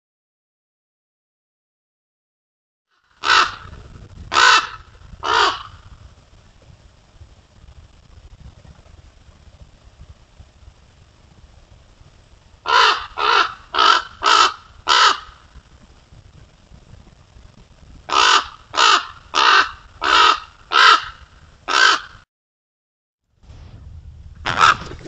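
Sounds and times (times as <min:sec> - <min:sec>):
raven harsh calls: 0:03.2 - 0:05.9, 0:12.6 - 0:15.5, 0:18.1 - 0:22.2, 0:24.5 - 0:24.8.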